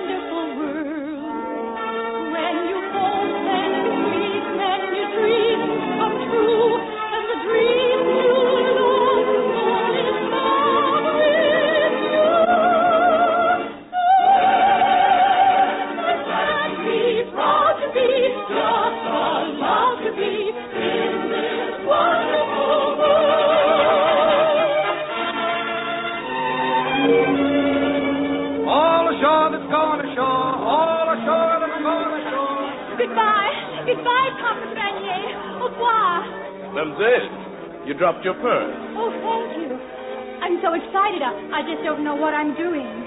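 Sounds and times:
operatic singing: 0.0 - 26.3, 26.9 - 37.0
orchestra playing: 0.0 - 43.0.

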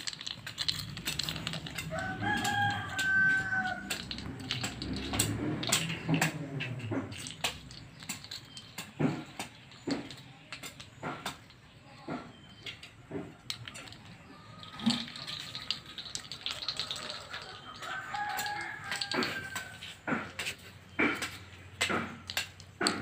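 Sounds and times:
rooster crowing: 1.7 - 4.3, 16.4 - 19.9.

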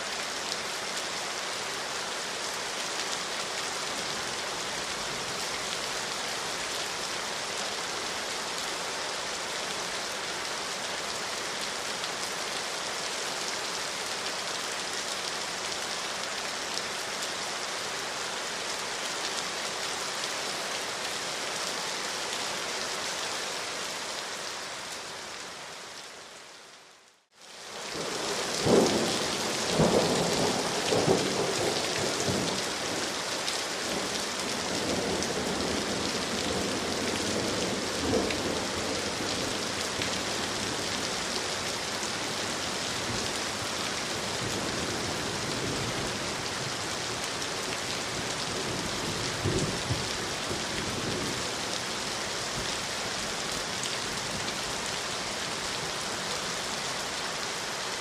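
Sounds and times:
rain falling on leaves: 0.0 - 58.0.

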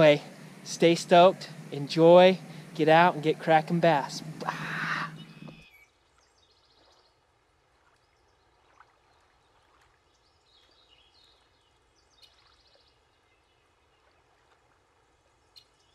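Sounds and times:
faint bird chirps: 4.2 - 7.1.

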